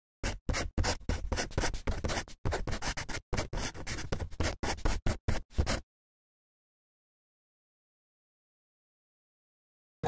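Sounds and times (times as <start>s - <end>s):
pen scratching on paper: 0.2s - 5.8s.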